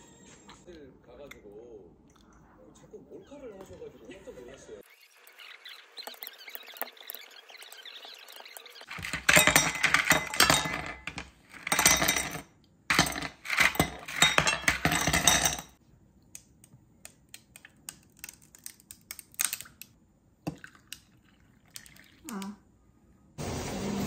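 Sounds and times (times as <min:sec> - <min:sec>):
ice cubes clattering into glass: 0:08.9 - 0:15.8.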